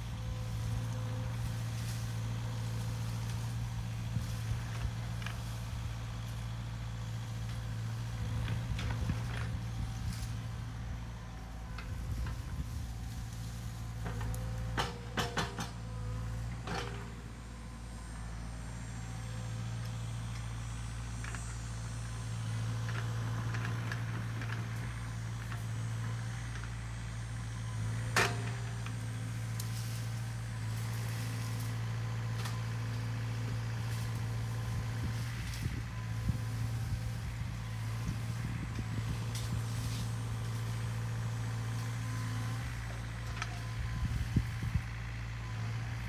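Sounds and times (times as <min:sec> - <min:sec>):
excavator diesel engine running: 0:00.0 - 0:46.0.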